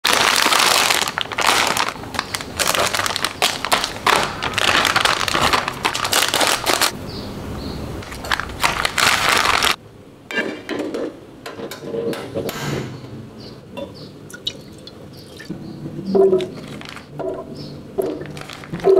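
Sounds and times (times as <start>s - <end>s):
packaging crinkling: 0.0s - 7.0s, 8.0s - 9.8s, 16.5s - 17.1s, 18.0s - 18.9s.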